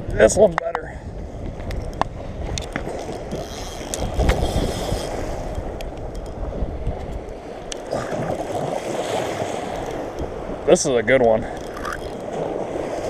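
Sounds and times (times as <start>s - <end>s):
waves washing against shore: 0.0s - 13.0s
fishing reel cranking: 2.6s - 5.6s, 11.5s - 12.2s.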